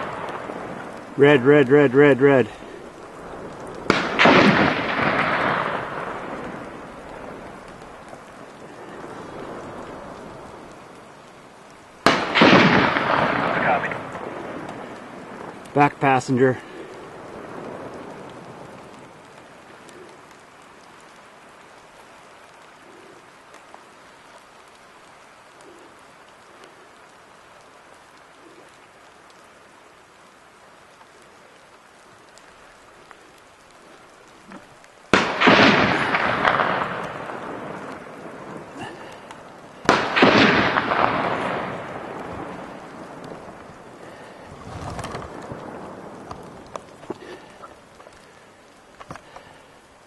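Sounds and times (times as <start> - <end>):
steady hiss: 0.0 - 50.0
gunshots: 3.8 - 6.2, 12.0 - 14.1, 35.1 - 37.2, 39.8 - 41.7.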